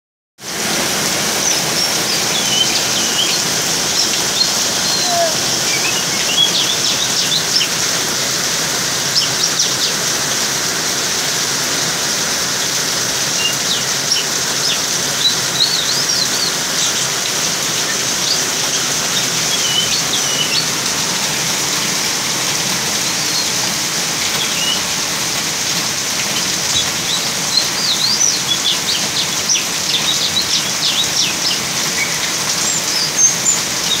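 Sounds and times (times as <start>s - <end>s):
steady rain falling: 0.4s - 34.0s
bird chirps and calls: 1.3s - 7.8s, 9.1s - 10.0s, 13.3s - 20.8s, 22.9s - 24.9s, 26.2s - 34.0s.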